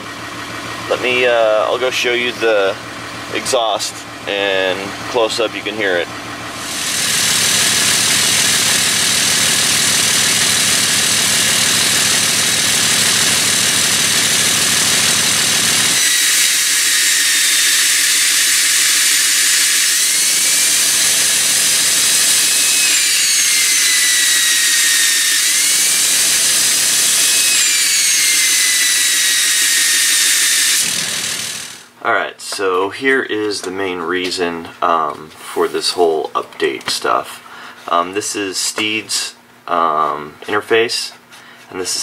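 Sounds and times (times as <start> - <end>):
diesel engine rumble: 0.0 - 16.0
high turbo whistle: 15.9 - 31.9.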